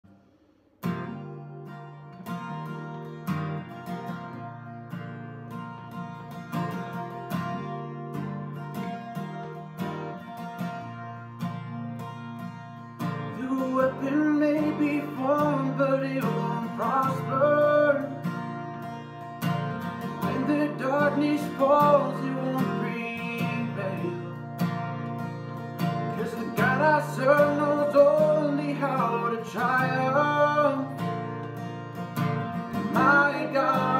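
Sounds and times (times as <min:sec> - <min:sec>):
acoustic guitar strumming: 0:00.1 - 0:33.9
man singing: 0:13.3 - 0:18.3, 0:20.1 - 0:24.4, 0:26.1 - 0:31.1, 0:32.7 - 0:33.9.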